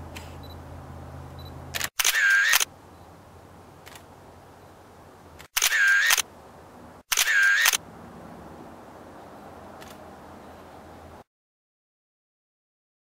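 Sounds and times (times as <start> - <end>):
camera shutter clicks: 1.7 - 2.7, 3.8 - 4.1, 5.4 - 6.3, 7.1 - 7.8, 9.8 - 10.0.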